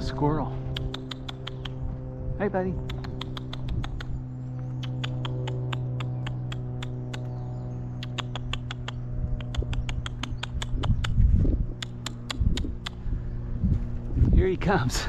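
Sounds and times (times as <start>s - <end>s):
steady low hum: 0.0s - 15.0s
person making clicking sounds: 0.7s - 1.8s, 2.8s - 4.2s, 4.8s - 7.4s, 8.0s - 13.0s.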